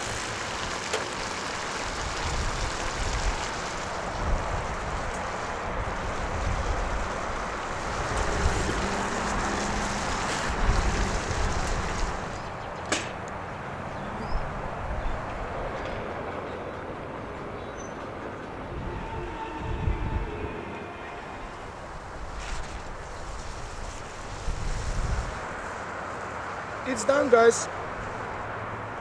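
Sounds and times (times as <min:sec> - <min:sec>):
meat sizzling in frying pan: 0:00.0 - 0:04.8.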